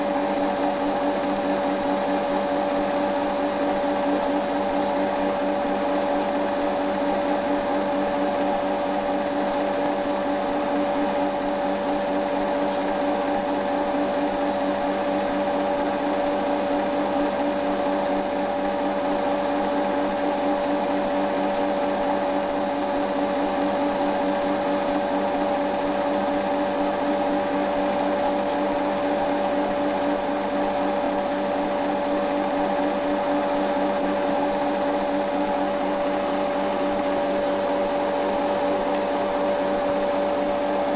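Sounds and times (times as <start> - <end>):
film projector whirring: 0.0 - 40.9.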